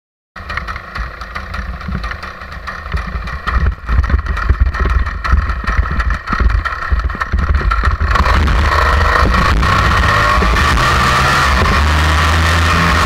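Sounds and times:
paramotor engine and propeller: 0:00.4 - 0:13.0
low rumble: 0:00.5 - 0:13.0.

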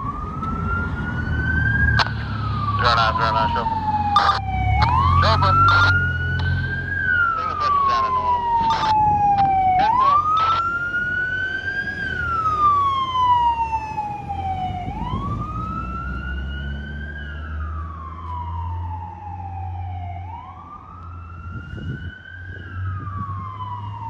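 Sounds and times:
truck engine rumble: 0:00.0 - 0:19.0
electronic siren wailing: 0:00.0 - 0:24.0.

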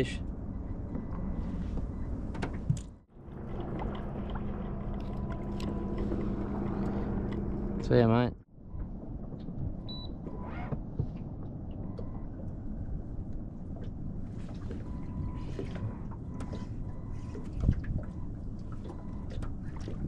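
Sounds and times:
water lapping against hull: 0:03.2 - 0:07.8, 0:11.9 - 0:20.0.

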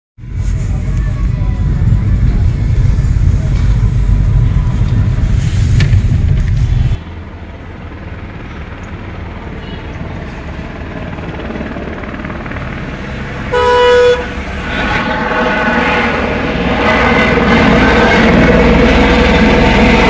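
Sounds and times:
helicopter engine and rotor: 0:05.8 - 0:20.0
vehicle horn honk: 0:13.5 - 0:14.4.

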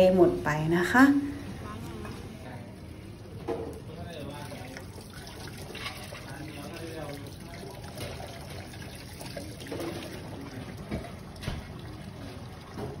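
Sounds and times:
tap water running into a sink: 0:03.4 - 0:13.0.

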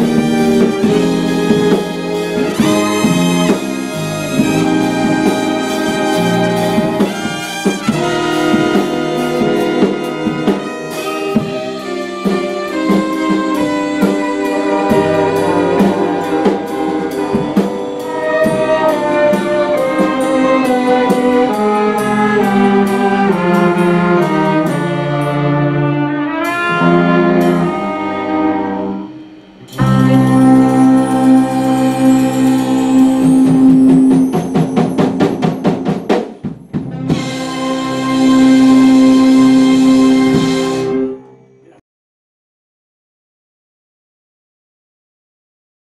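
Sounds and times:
violins and cellos playing: 0:00.0 - 0:35.9, 0:37.2 - 0:41.8
trumpet: 0:00.0 - 0:41.8.

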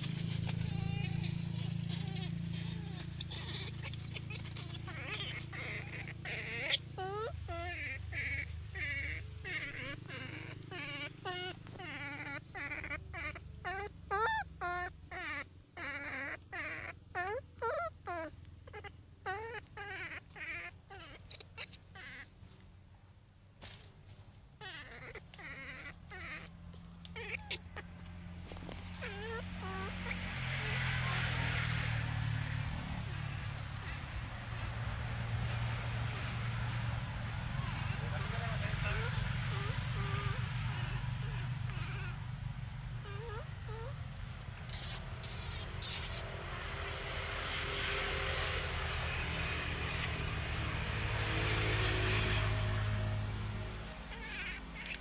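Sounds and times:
baby monkey high cries: 0:00.0 - 0:22.4, 0:24.6 - 0:53.2, 0:53.8 - 0:55.0
low motor hum: 0:26.0 - 0:55.0.

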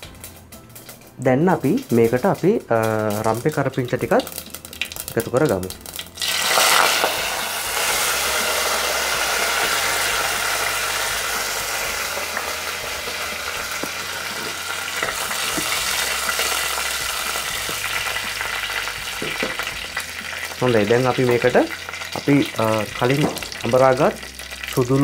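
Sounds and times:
leaves sizzling in hot oil: 0:00.0 - 0:25.0.

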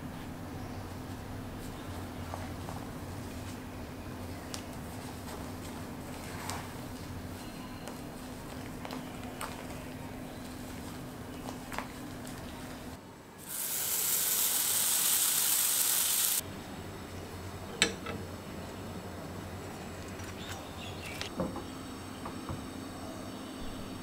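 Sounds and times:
loud steady hiss: 0:13.4 - 0:16.4.

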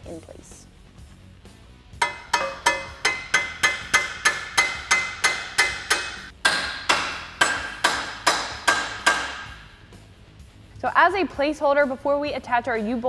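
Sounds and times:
hammer striking metal: 0:02.0 - 0:09.8.

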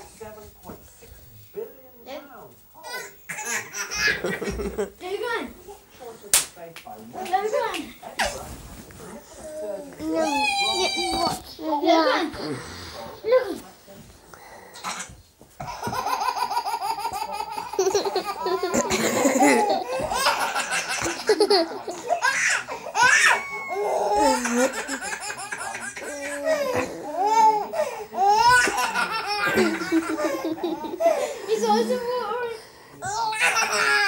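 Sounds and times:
baby laughing: 0:15.6 - 0:27.6.

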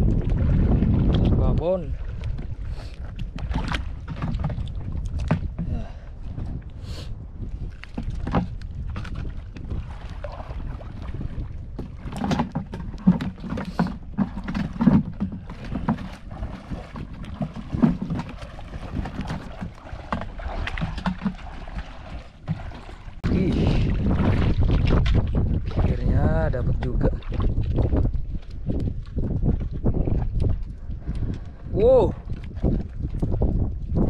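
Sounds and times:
seawater splashing: 0:07.7 - 0:29.4
knocks and swishes: 0:11.8 - 0:25.8.

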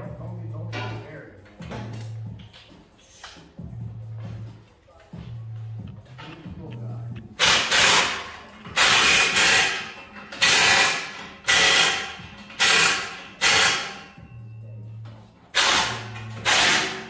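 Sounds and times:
pneumatic air tool bursts: 0:07.4 - 0:14.1, 0:15.5 - 0:17.0.

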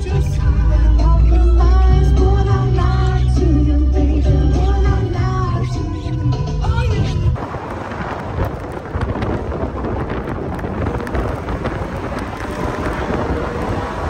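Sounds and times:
slush pelting car: 0:07.4 - 0:14.0
tyre and engine noise: 0:07.4 - 0:14.0.

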